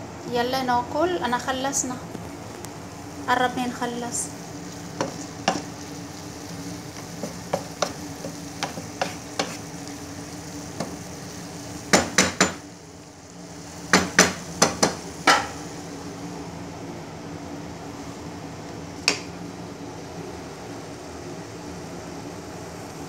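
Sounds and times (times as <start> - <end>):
faint sizzling: 0.0 - 23.0
steady low hum: 0.0 - 23.0
spatula knocking against pan: 5.0 - 5.6, 7.2 - 9.6, 11.9 - 12.6, 13.9 - 15.6.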